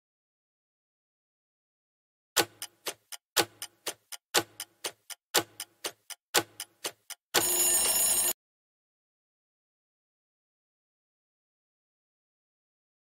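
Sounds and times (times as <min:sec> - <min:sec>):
countdown timer ticking: 0:02.4 - 0:08.4
bright ringing alarm tone: 0:07.4 - 0:08.4.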